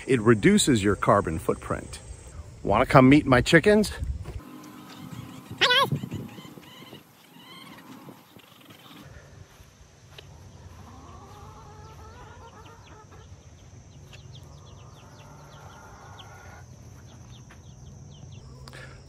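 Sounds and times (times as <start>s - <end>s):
chickens long rising calls: 4.4s - 9.6s, 10.2s - 17.4s.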